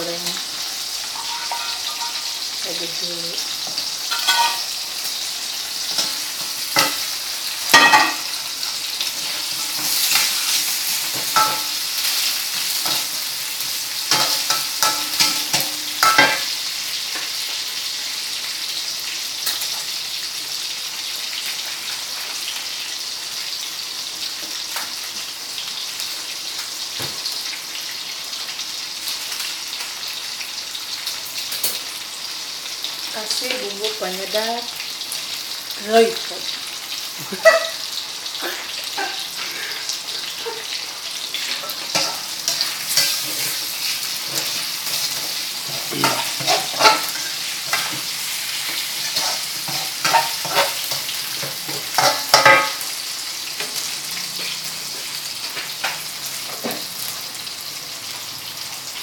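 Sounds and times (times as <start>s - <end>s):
fish and meatballs sizzling in a wok: 0.0s - 59.0s
metal spatula scraping a wok: 41.5s - 52.8s.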